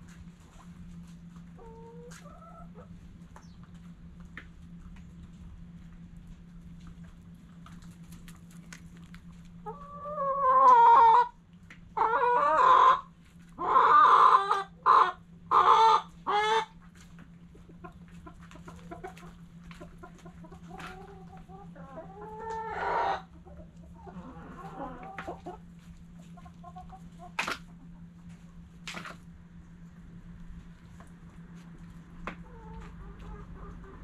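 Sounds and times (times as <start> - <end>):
chickens clucking: 0.0 - 29.3, 30.6 - 34.0
chickens squawking: 9.6 - 28.0, 32.3 - 34.0.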